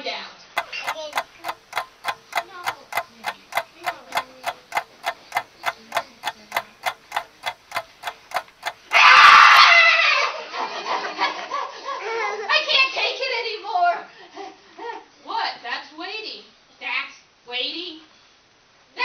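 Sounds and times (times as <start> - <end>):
clock ticking: 0.6 - 9.7.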